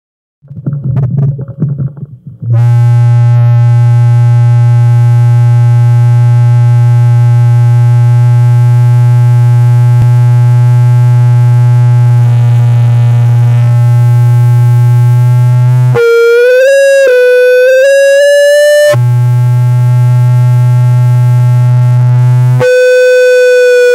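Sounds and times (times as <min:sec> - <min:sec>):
crackly low bursts: 0:00.4 - 0:16.0
loud buzzy electronic drone: 0:02.5 - 0:23.9.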